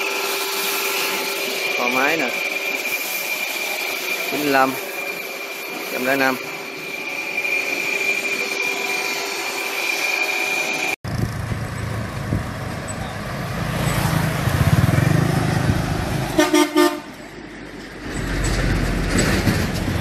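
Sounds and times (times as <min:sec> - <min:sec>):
steady high whine: 0:00.0 - 0:13.1
heavy trucks driving past: 0:11.1 - 0:20.0
vehicle horn honking: 0:16.3 - 0:17.2.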